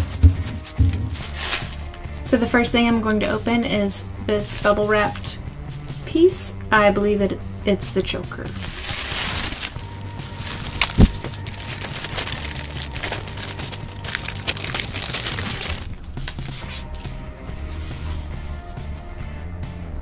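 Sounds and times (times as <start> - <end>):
loud thump: 0.0 - 1.3
bubble wrap crinkling: 0.0 - 2.3, 4.4 - 5.5, 8.5 - 18.6.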